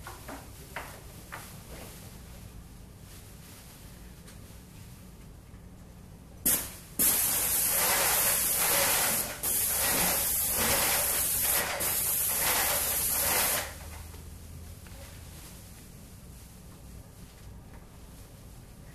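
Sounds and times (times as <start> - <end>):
paint spray gun hissing: 6.5 - 13.8.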